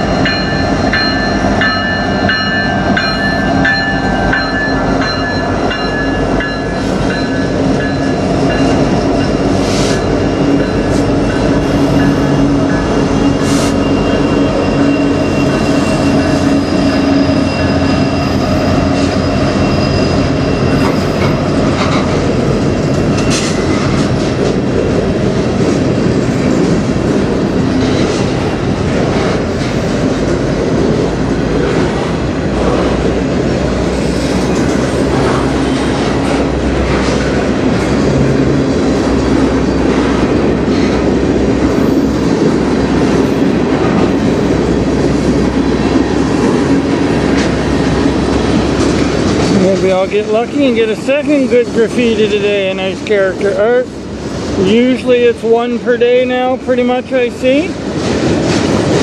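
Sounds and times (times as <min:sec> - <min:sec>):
high wheel squeal: 0:00.0 - 0:21.7
diesel locomotive humming: 0:00.0 - 0:59.0
freight cars rumbling: 0:00.0 - 0:59.0.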